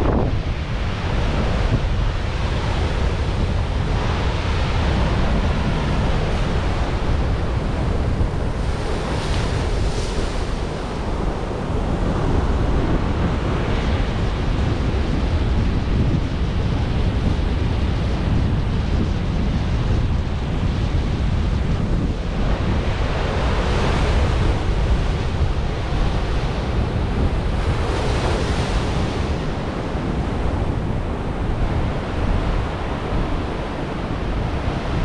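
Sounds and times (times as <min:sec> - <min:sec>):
ocean surf breaking on rocks: 0:00.0 - 0:13.1, 0:22.6 - 0:35.0
wind buffeting microphone: 0:00.0 - 0:35.0.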